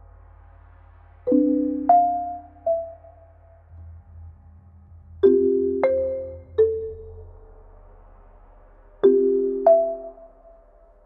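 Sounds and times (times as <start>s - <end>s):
soft bell-like music: 1.3s - 3.6s, 5.2s - 7.3s, 9.0s - 10.6s.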